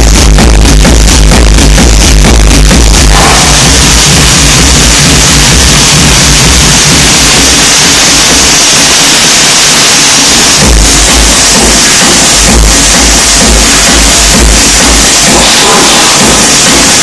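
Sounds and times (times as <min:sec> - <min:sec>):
distorted electronic dance music: 0:00.0 - 0:17.0
cymbal crash: 0:02.5 - 0:17.0.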